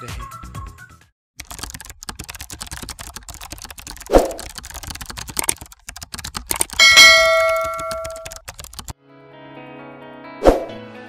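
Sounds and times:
bell ding: 6.8 - 8.4
keyboard keystroke clicks: 7.4 - 8.9.

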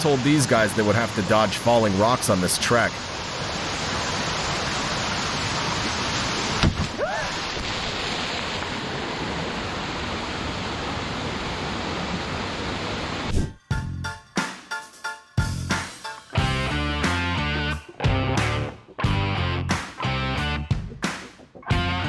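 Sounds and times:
stream rushing over boulders: 0.0 - 13.3.

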